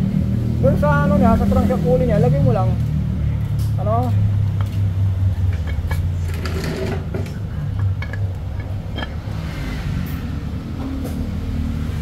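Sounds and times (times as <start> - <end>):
engine running hum: 2.5 - 12.0
metallic clicks and clinks: 3.4 - 9.4.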